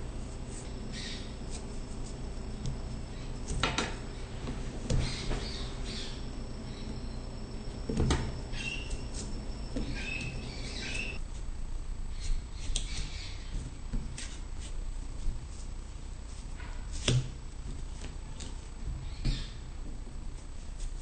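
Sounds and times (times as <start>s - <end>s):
low background hum: 0.0s - 21.0s
knife scraping watermelon rind: 0.2s - 3.6s, 8.5s - 11.5s, 12.1s - 14.9s
short high squeaks: 8.5s - 11.2s.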